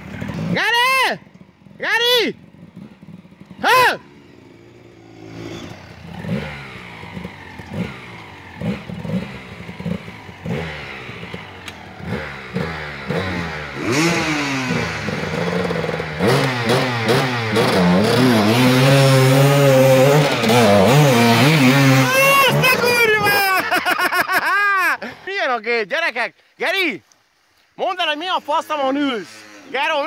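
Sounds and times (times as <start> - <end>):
dirt bike engine revving: 0.0 - 24.4, 28.4 - 30.0.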